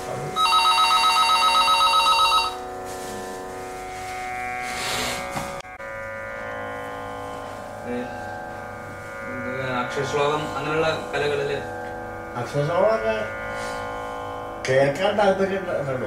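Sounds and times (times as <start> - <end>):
musical drone of held tones: 0.0 - 16.0
electronic telephone ringing: 0.4 - 2.6.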